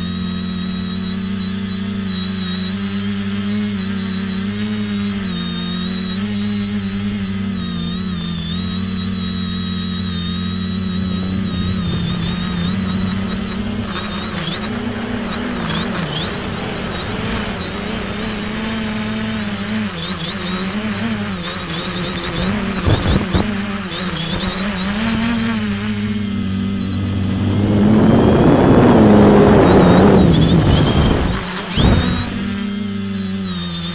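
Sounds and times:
drone motors and propellers whining: 0.0 - 33.9
rush of air: 26.6 - 32.3.

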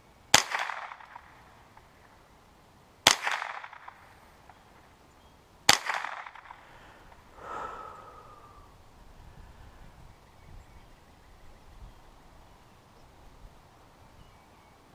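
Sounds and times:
rifle shots with echo: 0.3 - 1.8, 3.0 - 4.1, 5.7 - 6.6.

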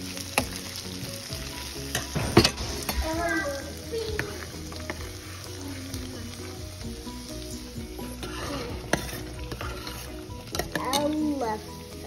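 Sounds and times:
bubbling and sizzling: 0.0 - 12.0
ladle stirring pot: 7.8 - 11.3.

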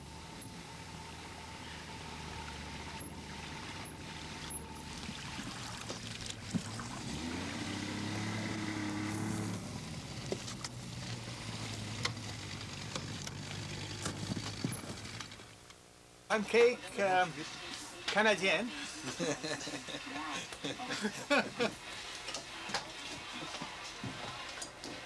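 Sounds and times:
outboard motor running: 0.0 - 15.6.

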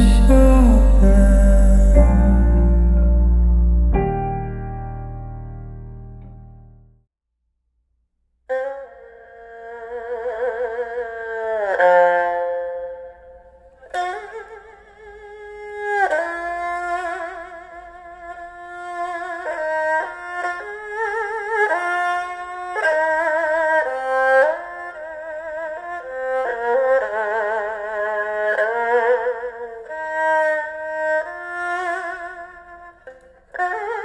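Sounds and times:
slow instrumental melody with vibrato: 0.0 - 7.0.

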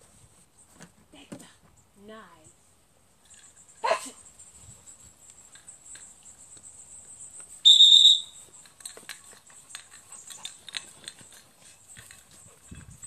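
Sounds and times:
insects buzzing: 1.8 - 13.0
shrill whistle note: 7.6 - 8.4.

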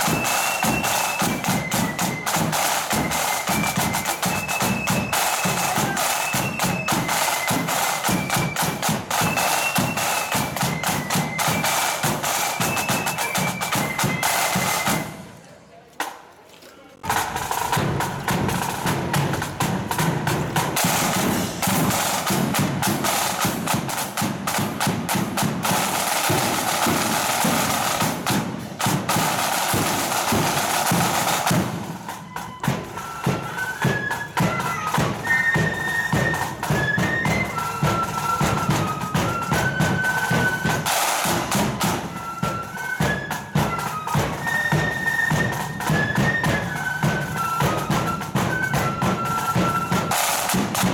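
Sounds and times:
flute melody: 0.0 - 15.5, 17.1 - 50.9
snare drums cadence: 17.0 - 31.8, 40.6 - 42.0, 49.8 - 50.9.

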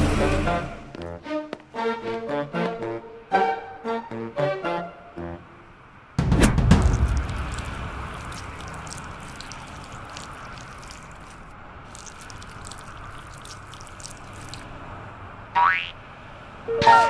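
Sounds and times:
low steady rumble: 6.2 - 11.9
wet squishing: 6.7 - 14.7
dripping clicks: 6.8 - 14.6.

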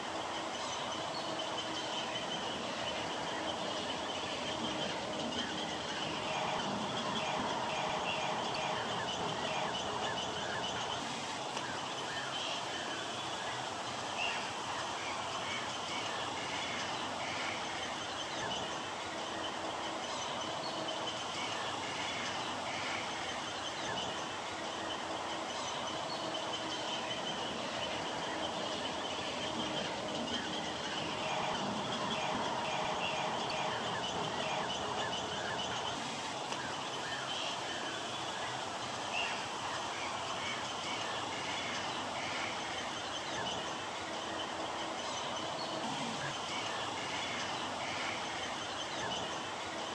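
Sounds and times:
many birds calling and chattering: 0.0 - 49.9.

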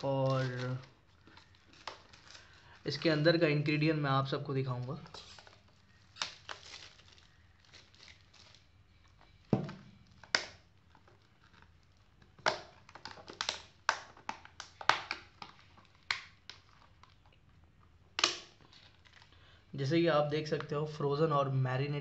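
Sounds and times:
plastic tray crackling: 0.0 - 3.9.

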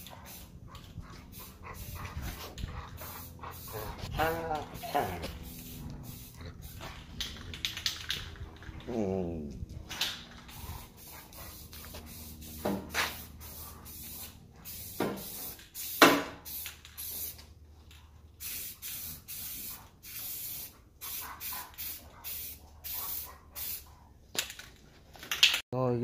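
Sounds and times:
spray paint can hissing: 0.0 - 0.5, 1.4 - 2.0, 3.0 - 4.1, 4.8 - 8.3, 10.0 - 17.5, 18.4 - 23.9.

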